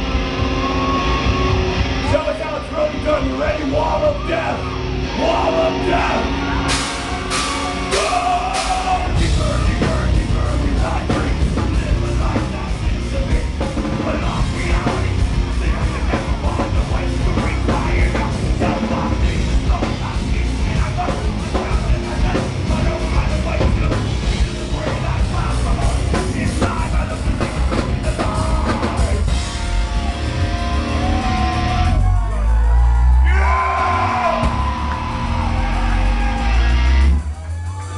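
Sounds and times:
bass guitar: 0:00.0 - 0:37.9
distorted electric guitars: 0:00.0 - 0:37.9
person singing: 0:03.4 - 0:32.3
fast drum-kit beat: 0:06.6 - 0:33.5.

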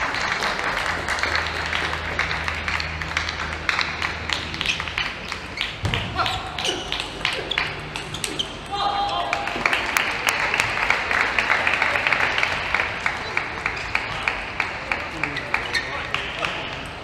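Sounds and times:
crowd applause and cheering: 0:00.0 - 0:05.7, 0:09.1 - 0:16.8.

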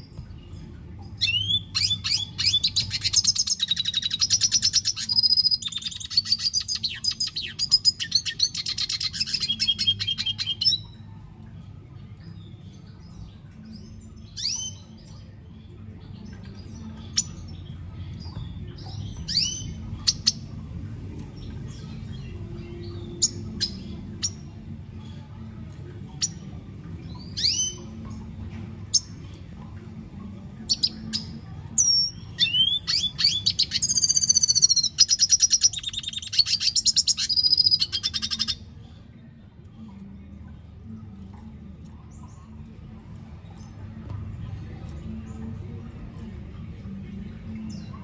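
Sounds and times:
fast twittering birdsong: 0:00.0 - 0:11.1, 0:11.7 - 0:29.4, 0:30.2 - 0:38.7
low steady hum: 0:00.0 - 0:48.0
bird chirping: 0:01.2 - 0:11.0, 0:30.7 - 0:38.6.

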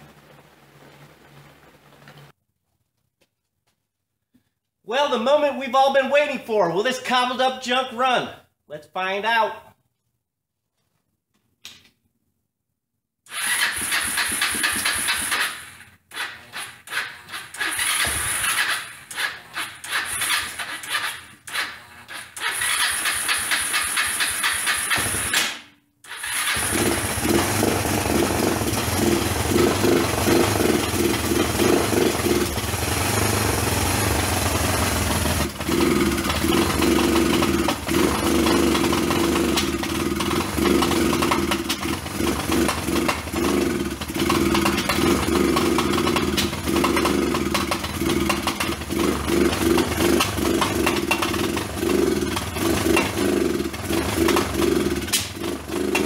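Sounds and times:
four-stroke engine running: 0:13.3 - 0:15.8, 0:26.2 - 0:56.0.

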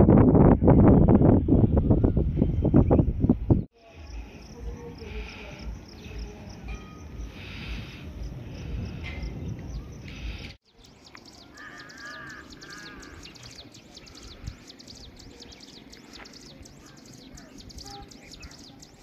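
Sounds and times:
wind buffeting microphone: 0:00.0 - 0:03.7, 0:05.8 - 0:10.9, 0:12.1 - 0:19.0
high chirps of birds or insects: 0:03.8 - 0:19.0.

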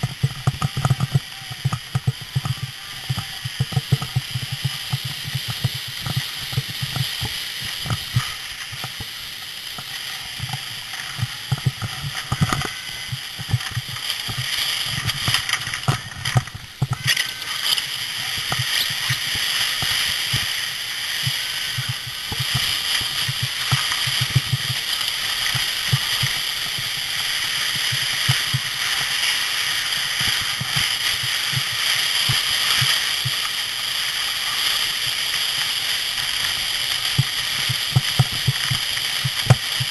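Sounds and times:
sled bumps and knocks: 0:00.0 - 0:20.5
sled sliding on snow: 0:00.0 - 0:39.9.

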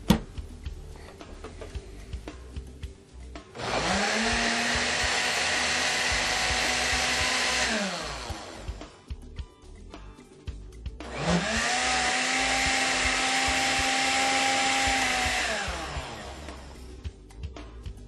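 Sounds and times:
blender motor whining: 0:03.6 - 0:09.0, 0:11.0 - 0:17.0.

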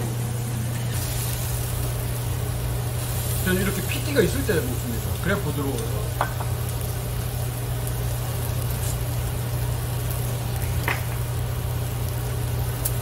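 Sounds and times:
low mechanical hum: 0:00.0 - 0:13.0
meat sizzling on a grill: 0:00.1 - 0:13.0.

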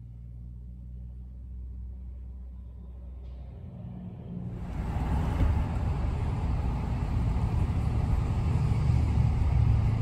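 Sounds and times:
road noise: 0:00.0 - 0:10.0
truck engine rumble: 0:04.2 - 0:10.0.

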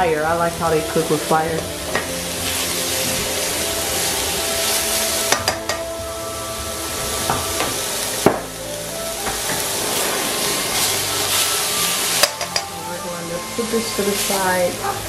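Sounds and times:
vegetables sizzling in a wok: 0:00.0 - 0:15.0
tongs clicking against pan: 0:05.3 - 0:05.9.

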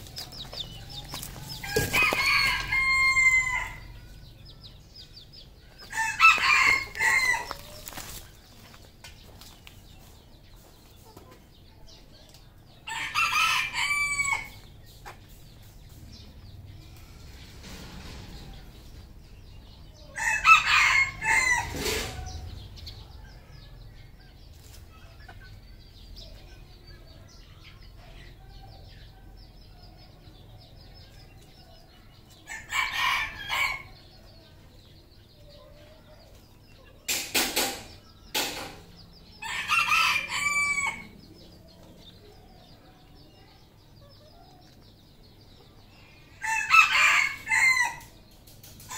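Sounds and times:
roosters crowing: 0:00.0 - 0:04.5, 0:05.7 - 0:08.4, 0:12.8 - 0:14.8, 0:17.2 - 0:23.0, 0:30.6 - 0:35.5, 0:37.1 - 0:42.2, 0:45.8 - 0:48.9.

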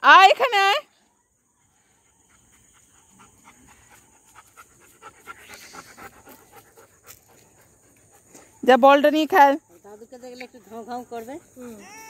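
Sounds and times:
dog panting rapidly: 0:01.6 - 0:08.6.

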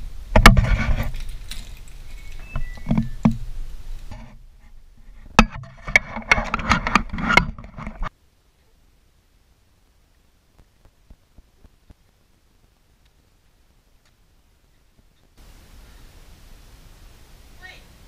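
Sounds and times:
rustling: 0:00.0 - 0:08.9.

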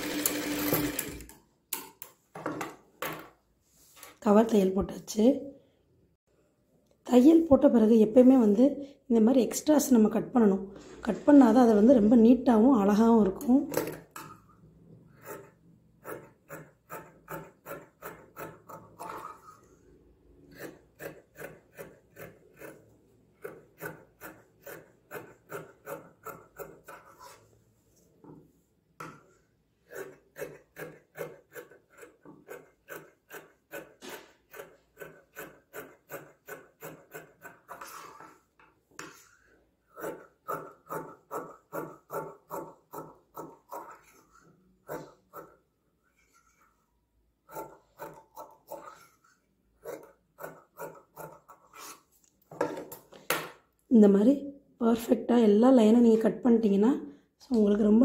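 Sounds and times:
scissors snipping fabric: 0:15.2 - 0:19.6, 0:20.5 - 0:27.2, 0:29.8 - 0:38.2, 0:39.9 - 0:45.6, 0:47.4 - 0:49.2.

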